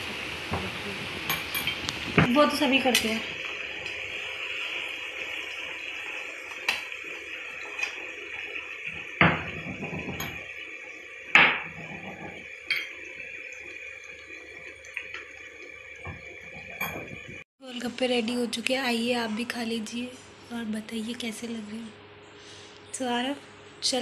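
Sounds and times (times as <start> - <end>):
food sizzling in hot oil: 0.0 - 17.5.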